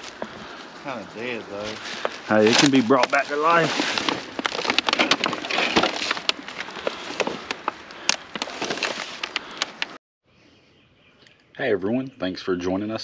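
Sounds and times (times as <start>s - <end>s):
plastic pots and bags rustling: 0.0s - 10.0s.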